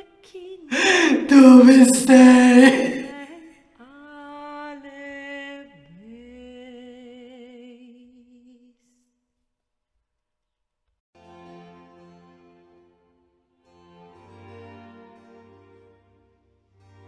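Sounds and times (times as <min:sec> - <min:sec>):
woman singing held notes: 0:00.7 - 0:03.2.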